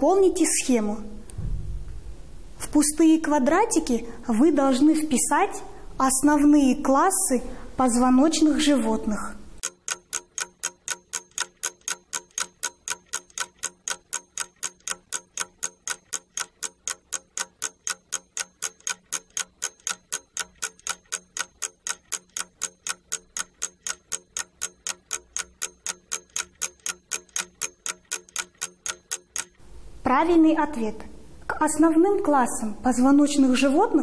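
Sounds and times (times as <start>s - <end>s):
clock ticking: 9.6s - 29.6s.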